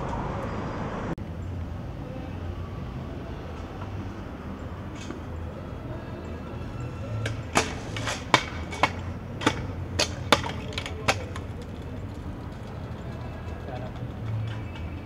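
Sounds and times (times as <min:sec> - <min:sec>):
scooter knocking on hard ground: 0:07.2 - 0:15.0.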